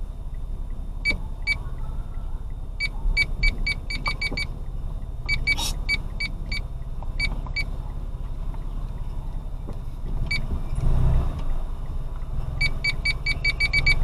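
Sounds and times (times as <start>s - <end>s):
car cabin rumble: 0.0s - 14.0s
high electronic beeps: 5.3s - 7.7s, 12.6s - 14.0s.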